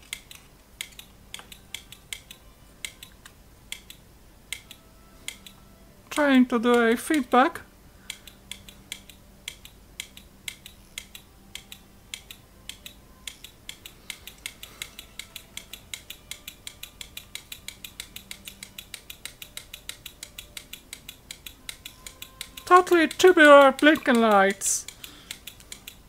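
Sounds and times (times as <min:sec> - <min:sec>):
electromechanical timer clicking: 0:00.0 - 0:05.6, 0:08.1 - 0:26.0.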